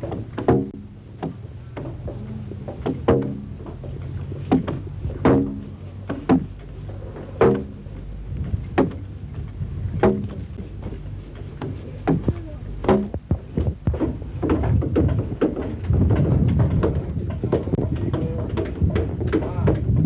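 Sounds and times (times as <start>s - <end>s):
tools knocking on wood: 0.0s - 6.6s
low hum: 0.0s - 20.0s.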